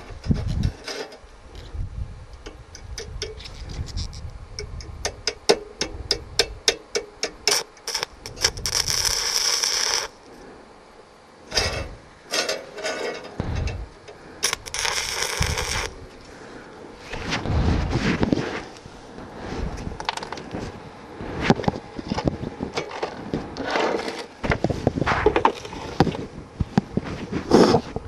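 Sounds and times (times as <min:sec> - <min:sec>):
electrode clicking on metal: 0:02.3 - 0:10.2, 0:13.2 - 0:16.0
welding arc sizzling: 0:06.4 - 0:10.3, 0:12.7 - 0:16.3.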